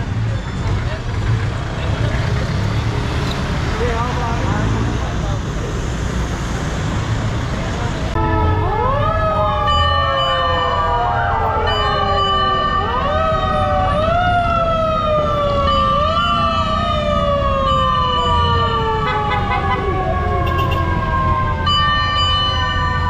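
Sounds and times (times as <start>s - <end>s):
fire truck sirens wailing: 8.1s - 23.0s.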